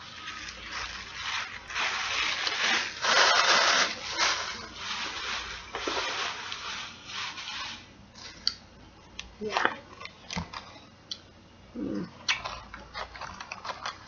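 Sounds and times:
paper rustling and crinkling: 0.0s - 8.4s.

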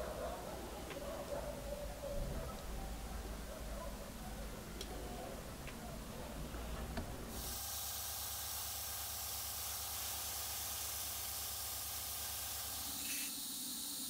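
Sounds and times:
airbrush spraying hiss: 7.4s - 14.0s.

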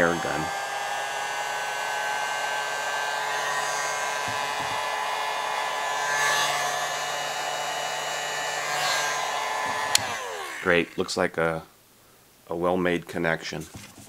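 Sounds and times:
hot air gun fan whining: 0.0s - 11.2s.

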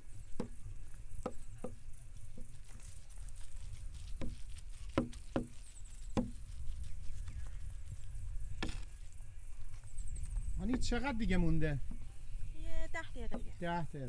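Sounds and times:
cleaver chopping meat on wooden block: 0.3s - 0.6s, 1.2s - 2.5s, 4.2s - 5.6s, 6.2s - 6.4s.

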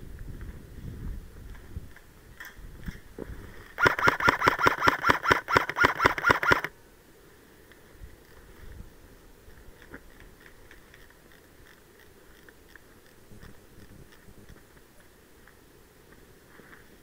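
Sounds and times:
airsoft gun full-auto burst: 3.8s - 6.7s.

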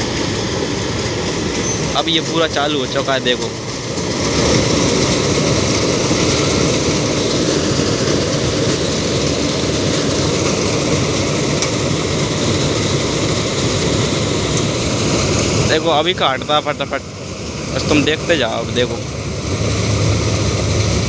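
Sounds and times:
combine harvester engine drone: 0.0s - 21.0s.

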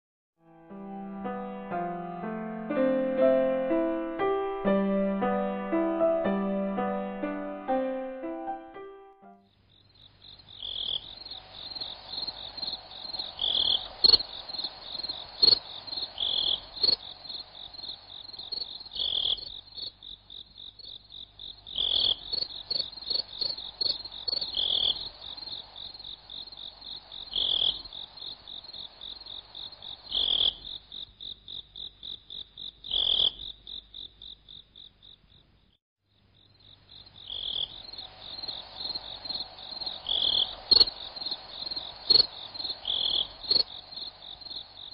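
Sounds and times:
frogs croaking: 9.4s - 44.9s
crickets trilling: 9.7s - 35.5s, 36.3s - 44.9s.

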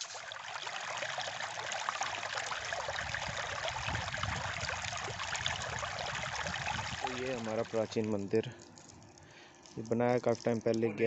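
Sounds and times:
stream running over rocks: 0.0s - 8.3s.

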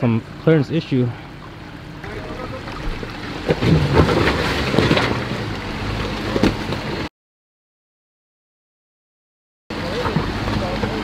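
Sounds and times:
vehicle engine running: 0.0s - 7.1s.

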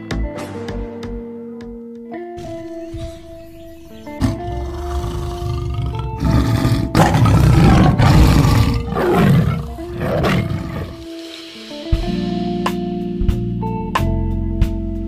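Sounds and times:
background music: 0.0s - 15.0s
loud animal roars: 2.4s - 11.1s.

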